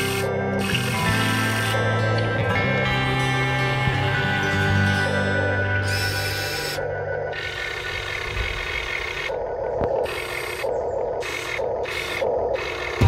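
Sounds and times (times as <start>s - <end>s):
small electric motors whirring: 0.0s - 2.2s, 5.8s - 13.0s.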